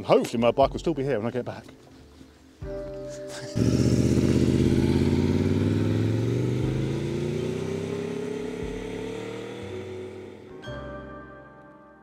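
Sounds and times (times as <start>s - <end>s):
motorcycle engine accelerating away: 3.3s - 10.7s.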